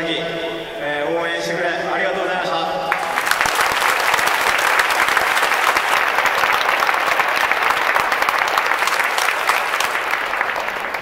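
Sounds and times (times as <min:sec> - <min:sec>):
stadium crowd applauding: 0:02.9 - 0:11.0.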